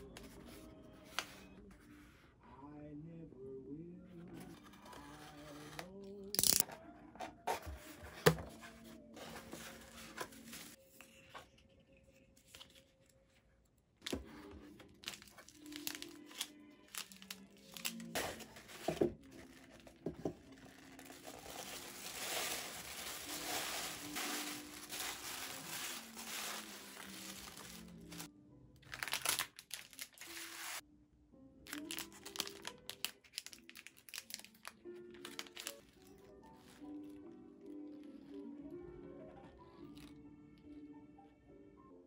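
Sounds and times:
soft background music: 0.0 - 42.0
handling cardboard box: 7.2 - 10.8, 18.1 - 28.3
tissue paper crinkling: 8.8 - 11.4, 14.0 - 28.3, 28.9 - 30.8, 31.7 - 37.2.

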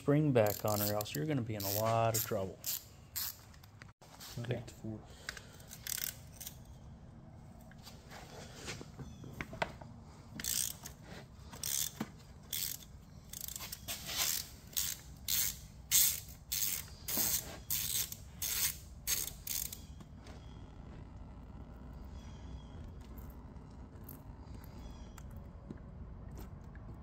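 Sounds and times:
ratchet wrench clicking: 0.4 - 3.6, 5.6 - 6.6, 10.4 - 10.9, 11.6 - 20.0.

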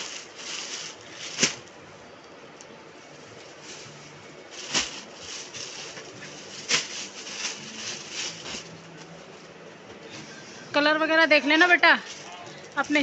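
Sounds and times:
plastic packaging crinkling: 0.0 - 1.7, 3.5 - 8.8.

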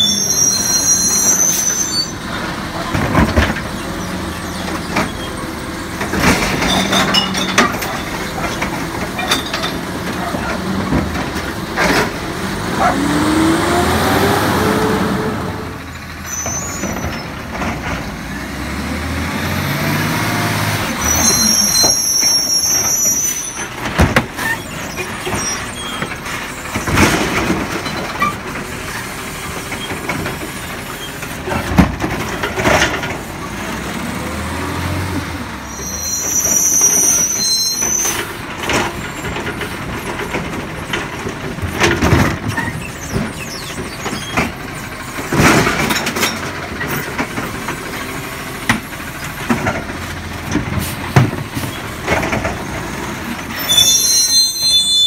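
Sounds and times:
garbage truck engine revving: 2.1 - 37.4.

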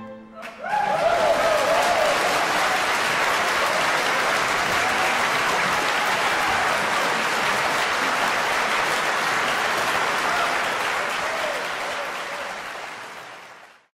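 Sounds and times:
audience applauding: 0.4 - 13.9.

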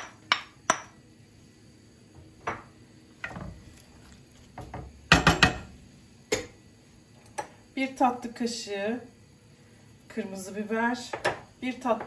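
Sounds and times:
onions scraped and stirred: 3.2 - 5.8
wooden spoon knocking on pot: 4.6 - 5.7.

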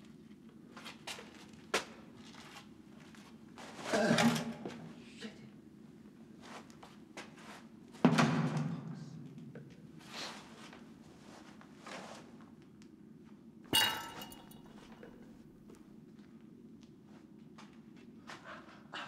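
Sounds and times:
metallic clank ringing: 13.8 - 15.4.

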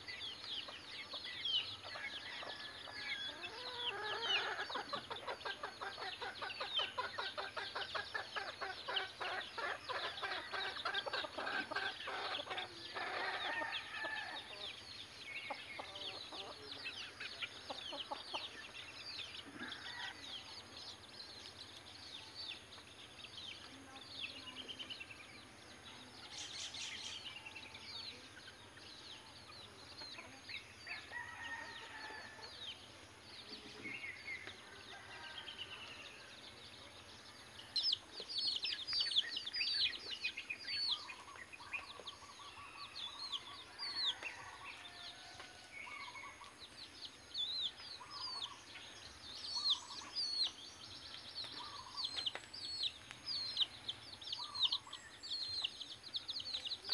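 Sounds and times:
chick peeping: 0.0 - 56.9
hen clucking: 3.3 - 13.6.

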